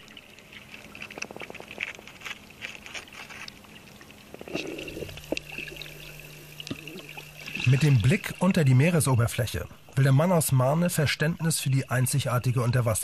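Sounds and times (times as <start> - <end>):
water splashing and sloshing: 0.0 - 10.2.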